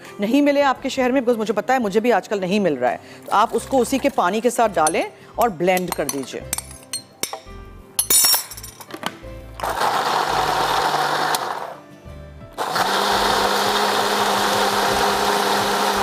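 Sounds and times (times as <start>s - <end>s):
blender motor pureeing corn: 9.6s - 11.8s, 12.6s - 16.0s.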